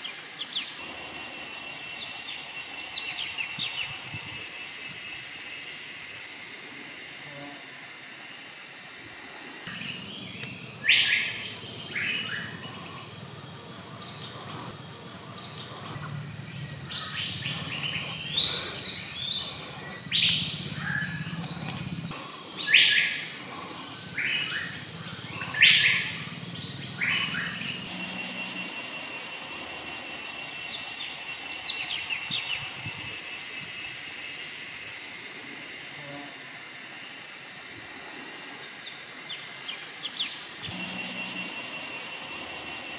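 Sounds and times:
pulsing insect buzz: 0.0s - 42.9s
thin insect whine: 0.0s - 42.9s
faint chirps: 9.6s - 34.9s, 38.6s - 42.9s
low hum: 9.7s - 32.8s.

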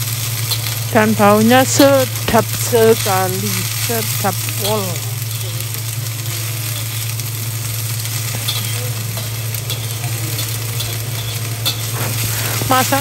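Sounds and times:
low hum: 0.0s - 13.0s
stir-fry sizzling: 0.0s - 13.0s
metal spatula scraping wok: 8.2s - 13.0s.

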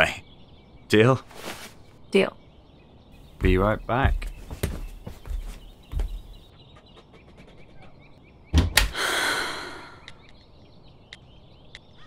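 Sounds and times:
door shutting with thuds: 8.5s - 9.0s.

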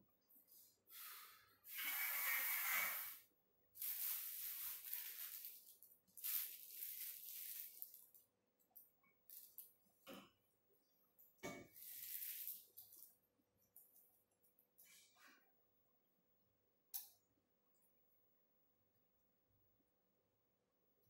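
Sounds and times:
plastic wrap crinkling: 3.8s - 8.3s, 11.8s - 13.2s.

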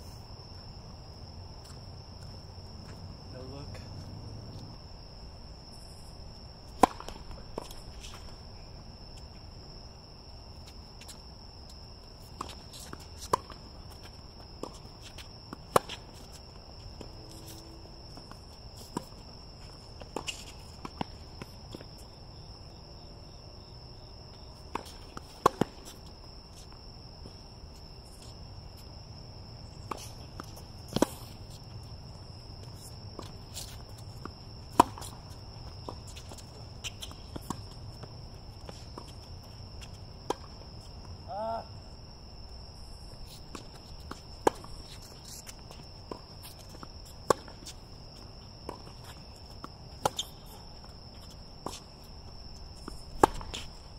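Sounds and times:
high-pitched insect trill: 0.0s - 6.8s, 7.6s - 53.9s
tennis balls struck by rackets: 6.7s - 8.3s, 24.6s - 25.9s, 34.2s - 36.0s, 52.9s - 53.7s.

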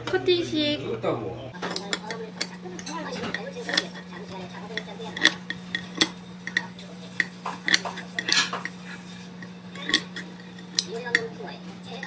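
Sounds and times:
metal clicks and taps on ceramic: 4.7s - 8.8s.

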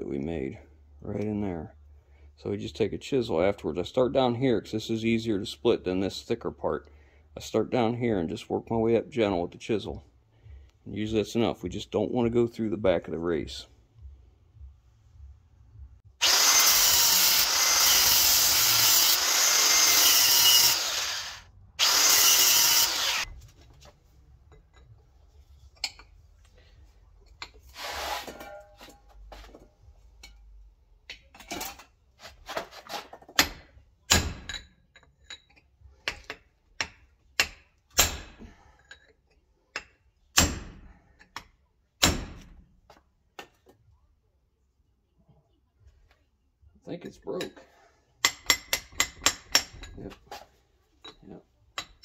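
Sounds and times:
grinder running: 16.2s - 23.3s
hammer striking a chisel: 36.1s - 38.4s, 48.2s - 49.9s.

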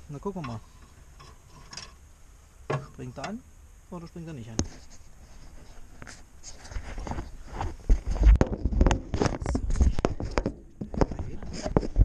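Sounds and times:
sleeve rustling against microphone: 4.6s - 12.0s.

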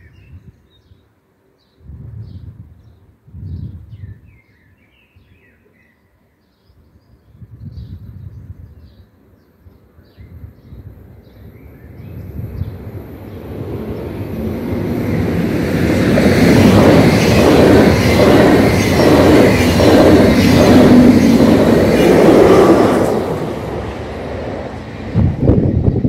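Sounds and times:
train passing at speed: 10.8s - 26.0s
clatter of train wheels: 15.2s - 23.9s.

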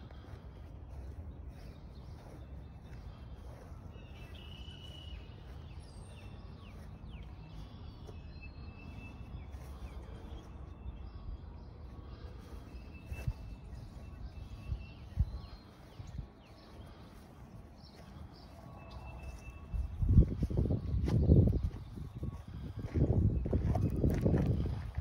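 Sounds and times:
birds chirping: 0.0s - 25.0s
footsteps: 12.4s - 25.0s.

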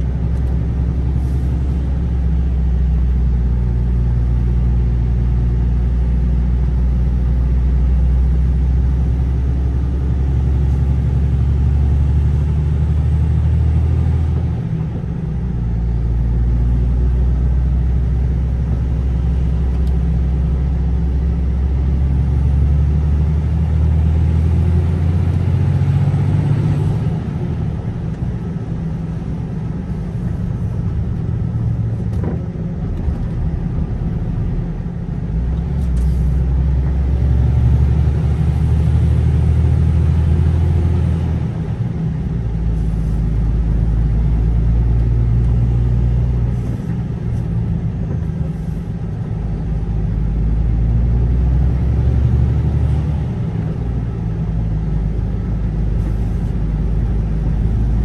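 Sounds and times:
car engine hum: 0.0s - 58.0s
road noise: 0.0s - 58.0s.

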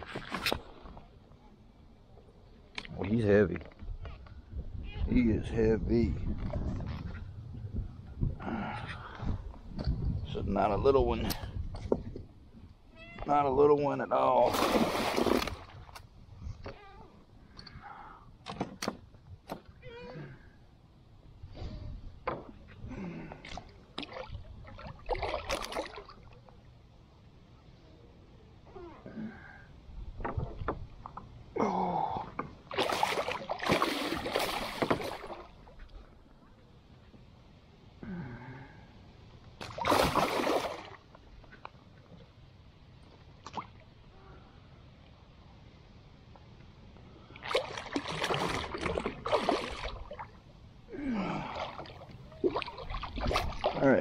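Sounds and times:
water splashing: 14.4s - 16.0s, 23.9s - 26.4s, 32.7s - 35.8s, 39.6s - 41.1s, 47.3s - 50.4s, 51.1s - 54.0s
fish splashing at the surface: 14.5s - 15.7s, 32.7s - 35.5s, 39.6s - 41.0s.

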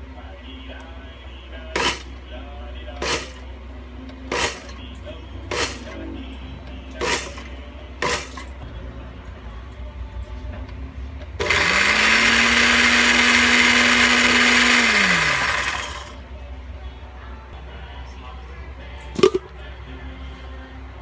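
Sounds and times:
blender motor whining: 11.4s - 16.2s.

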